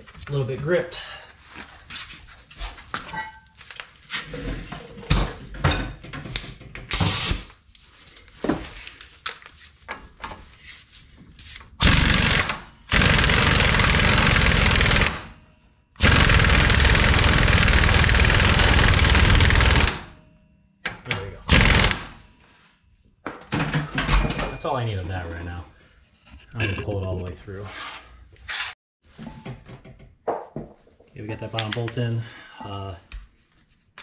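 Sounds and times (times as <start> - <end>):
power impact wrench running: 11.8 - 15.3, 16.0 - 20.1, 21.5 - 22.1.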